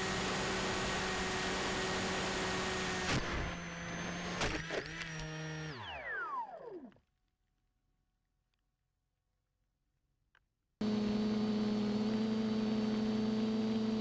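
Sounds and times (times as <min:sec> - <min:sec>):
electric motor whining: 0:00.0 - 0:07.0, 0:10.8 - 0:14.0.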